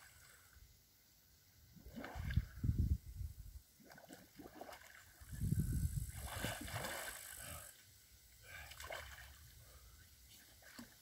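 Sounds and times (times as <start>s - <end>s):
water splashing from swimming: 3.8s - 5.2s, 6.2s - 7.5s, 8.5s - 9.5s.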